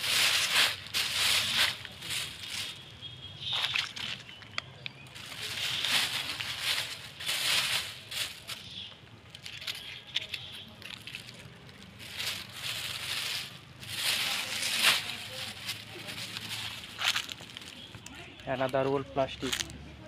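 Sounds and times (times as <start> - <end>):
plastic bag rustling: 0.0 - 2.9, 5.1 - 8.8, 9.4 - 18.2.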